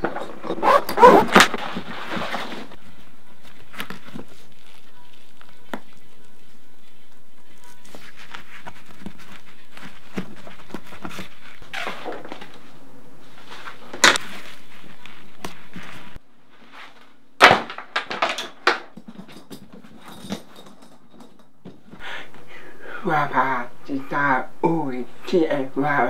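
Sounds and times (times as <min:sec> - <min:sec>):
fabric rustling: 0:00.0 - 0:17.3.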